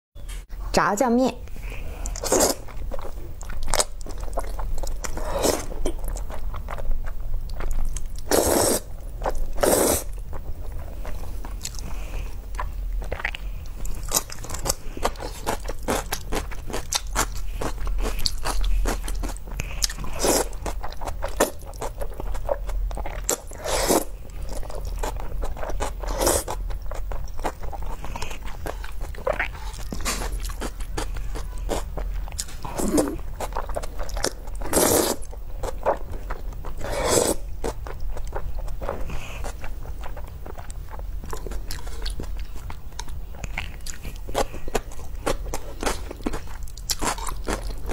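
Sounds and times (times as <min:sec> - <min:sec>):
wet chewing: 0:02.0 - 0:47.9
noodle slurps: 0:08.3 - 0:08.9, 0:09.6 - 0:10.1, 0:34.7 - 0:35.2.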